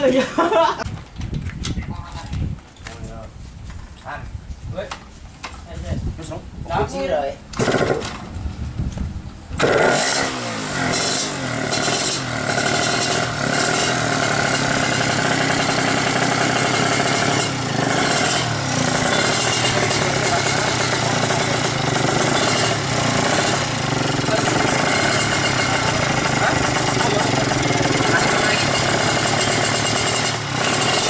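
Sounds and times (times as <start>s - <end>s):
two-stroke motorcycle engine revving: 7.5s - 8.3s, 9.5s - 31.0s.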